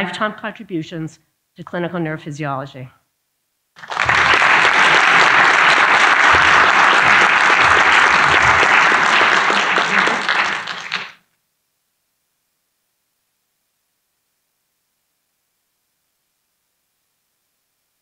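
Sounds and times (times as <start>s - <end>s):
audience applauding: 3.8s - 11.2s.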